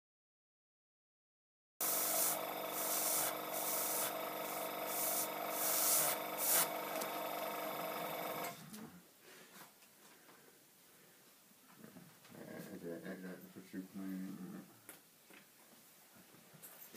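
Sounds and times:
airbrush hissing air bursts: 1.8 - 8.5
air compressor humming: 1.8 - 8.7.

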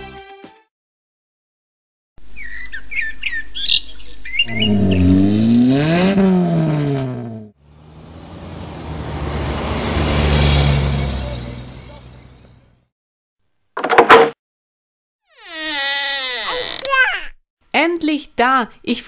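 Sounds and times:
birds chirping: 2.3 - 5.6
car driving past: 4.4 - 12.8
lorry engine with tyre noise: 4.4 - 12.9.

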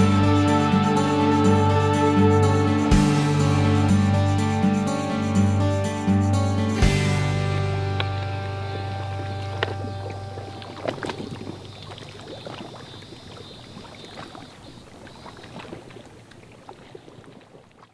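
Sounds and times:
small waves lapping on rocks: 8.3 - 17.9.

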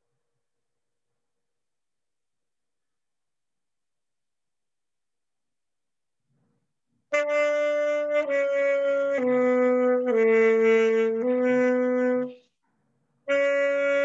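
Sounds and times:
saxophone playing held notes: 7.1 - 12.4, 13.3 - 14.0.

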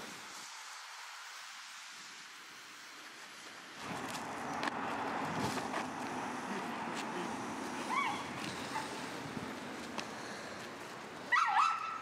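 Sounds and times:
outdoor background hiss: 0.0 - 12.0
puppy yip: 11.3 - 12.0.

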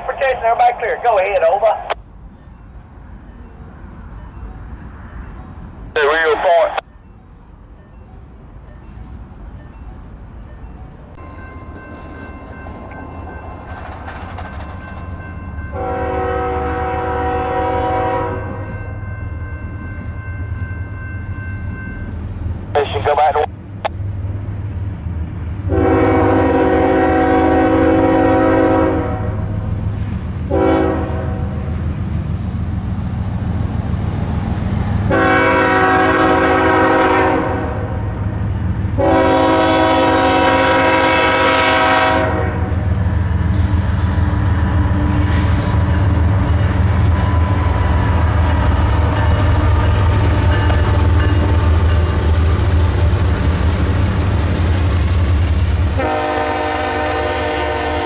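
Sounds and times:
passing train rumble: 0.0 - 58.0
locomotive air horn blasts: 15.7 - 18.7, 25.7 - 29.4, 30.5 - 31.6, 35.1 - 38.0, 39.0 - 42.8, 56.0 - 58.0.

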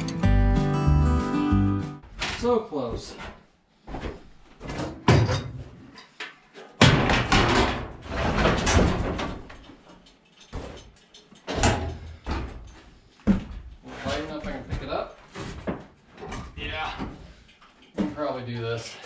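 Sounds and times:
wood and metal knocking and banging: 4.6 - 18.3.

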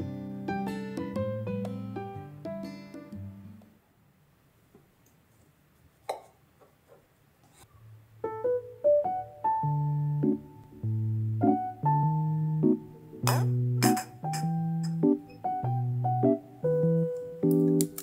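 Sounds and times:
slow piano music: 0.0 - 3.5, 8.2 - 18.0.

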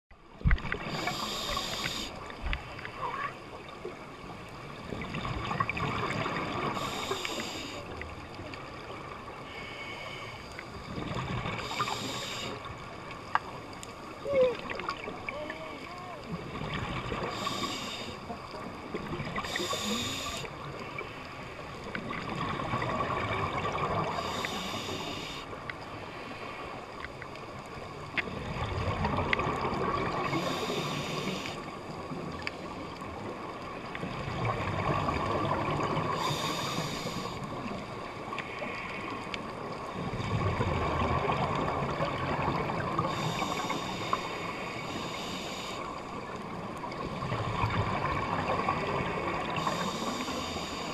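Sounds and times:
regulator inhalation hiss: 0.9 - 2.2, 6.7 - 7.8, 11.6 - 12.7, 17.2 - 18.2, 19.4 - 20.5, 24.1 - 25.6, 30.3 - 31.7, 36.2 - 37.5, 43.1 - 46.0, 49.6 - 50.9.

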